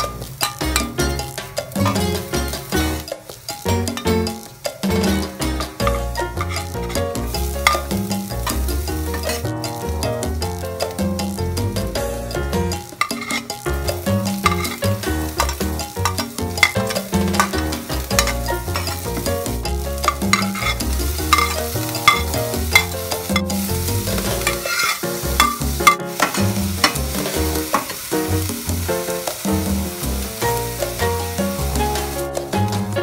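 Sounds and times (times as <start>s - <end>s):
metal ladle scraping a pan: 0.0s - 9.8s, 12.8s - 28.1s
background music: 0.0s - 33.0s
vegetables sizzling in oil: 0.0s - 33.0s.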